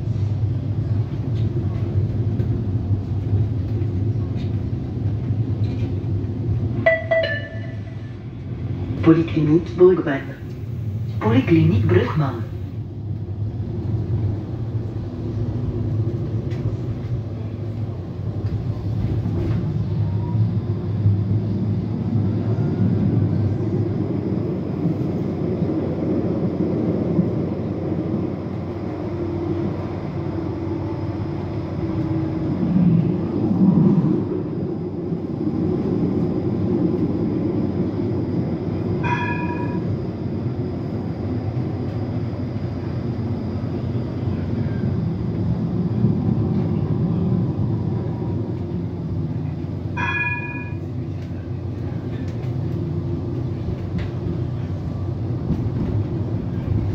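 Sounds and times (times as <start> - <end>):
tram wheels rumbling: 0.0 - 56.9
short ringing chimes: 39.0 - 39.8, 50.0 - 50.8.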